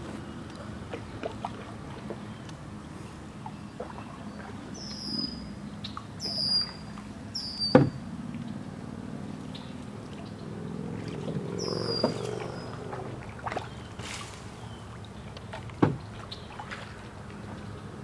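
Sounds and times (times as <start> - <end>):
bird whistling call: 4.8 - 5.4, 6.2 - 7.9, 11.6 - 12.8
water dripping from paddle: 9.4 - 14.2.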